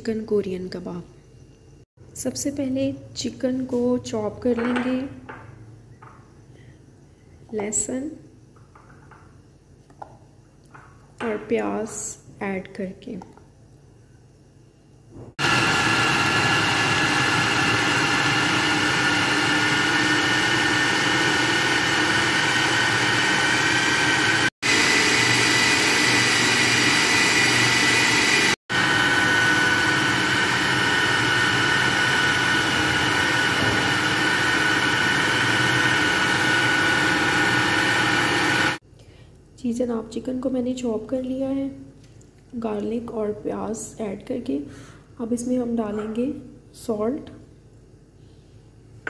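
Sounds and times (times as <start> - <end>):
food processor motor whining: 15.4 - 38.8.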